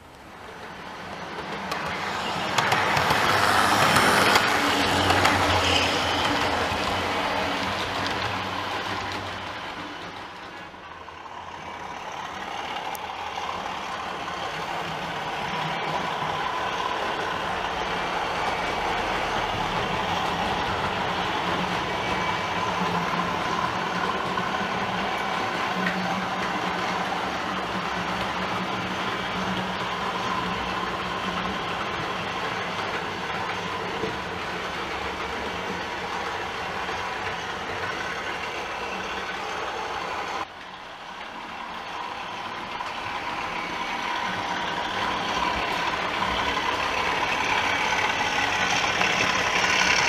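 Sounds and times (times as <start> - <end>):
model train wheels rumbling: 0.0 - 50.0.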